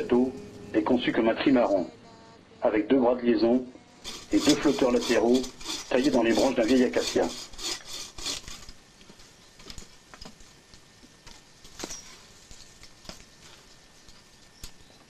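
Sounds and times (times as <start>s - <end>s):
saw strokes on branch: 4.0s - 8.8s.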